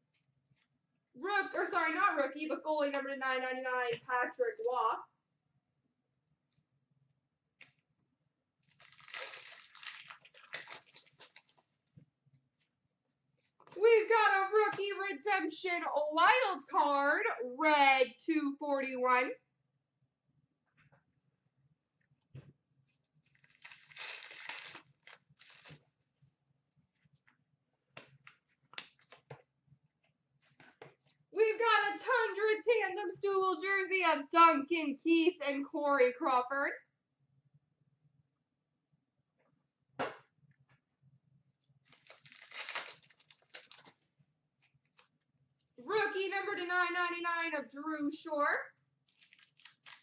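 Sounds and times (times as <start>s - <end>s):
cards rustling and scraping: 23.3s - 25.9s, 41.9s - 44.0s, 49.1s - 50.0s.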